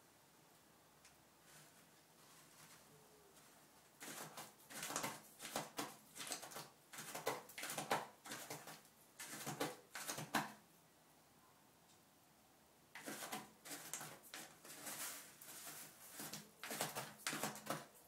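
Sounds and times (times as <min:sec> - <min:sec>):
cat scratching litter: 0:04.0 - 0:10.6, 0:13.0 - 0:18.0.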